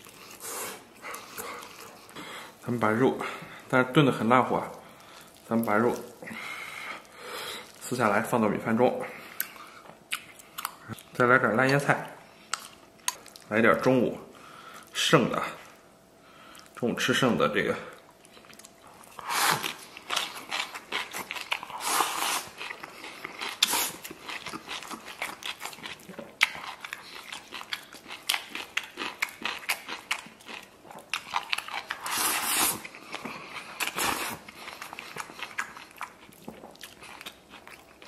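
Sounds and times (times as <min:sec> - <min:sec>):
chewing and crunching: 0:00.0 - 0:02.7, 0:04.2 - 0:08.1, 0:09.2 - 0:14.0, 0:17.9 - 0:38.0
slurping food: 0:19.2 - 0:19.8, 0:21.7 - 0:22.6, 0:32.0 - 0:32.9.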